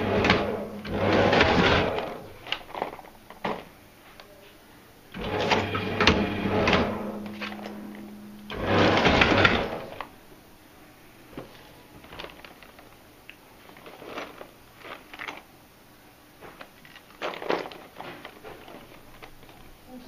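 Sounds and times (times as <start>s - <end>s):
banding machine feeding band: 0.0s - 2.6s, 5.1s - 10.1s
plastic tray clicking and crackling: 16.6s - 19.6s.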